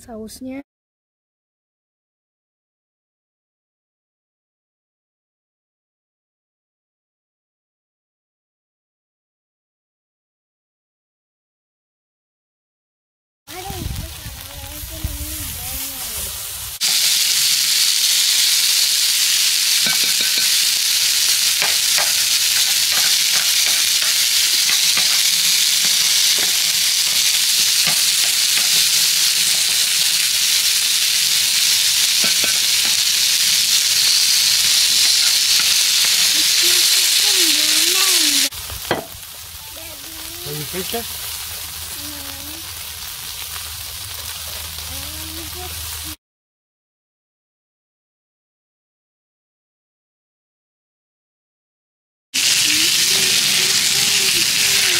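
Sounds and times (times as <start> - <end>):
meat sizzling on a griddle: 13.5 - 46.2, 52.4 - 54.9.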